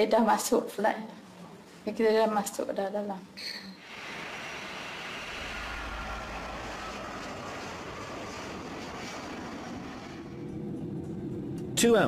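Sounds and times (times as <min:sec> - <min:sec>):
jet engine rush: 0:03.8 - 0:12.0
low rumble: 0:04.0 - 0:11.8.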